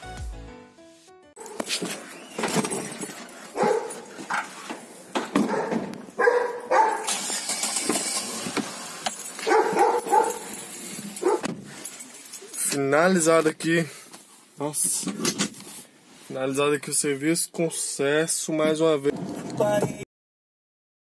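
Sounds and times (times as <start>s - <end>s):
dog barking: 3.5s - 4.1s, 5.4s - 7.1s, 9.4s - 10.5s, 11.2s - 11.5s.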